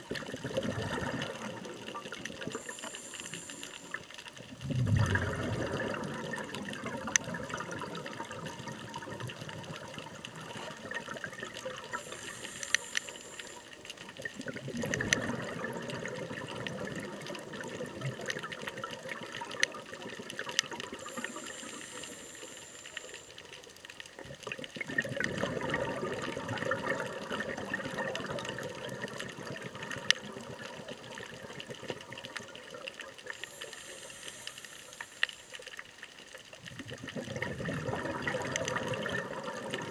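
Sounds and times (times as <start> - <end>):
exhaled bubbles rushing: 0.0 - 2.7, 4.4 - 12.2, 14.1 - 21.6, 24.4 - 33.4, 36.6 - 39.9
regulator hiss on inhale: 1.2 - 4.6, 11.8 - 14.3, 20.5 - 24.1, 33.2 - 36.5.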